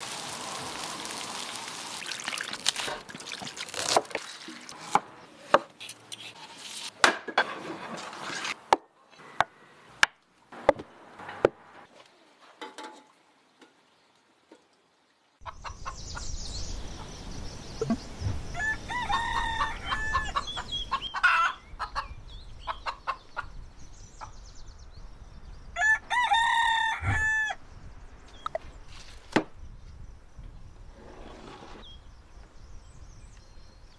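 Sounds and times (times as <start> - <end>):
oil sizzling with pops: 0.0 - 4.7
rooster crowing: 18.5 - 20.6, 25.8 - 27.6.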